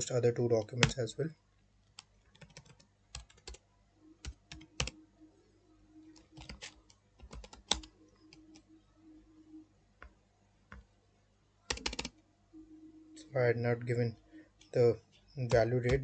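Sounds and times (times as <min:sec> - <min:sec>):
faint low hum: 0:00.0 - 0:16.0
computer keyboard typing: 0:00.7 - 0:01.0, 0:01.9 - 0:03.6, 0:04.2 - 0:05.0, 0:06.0 - 0:08.7, 0:11.7 - 0:12.2, 0:15.4 - 0:16.0.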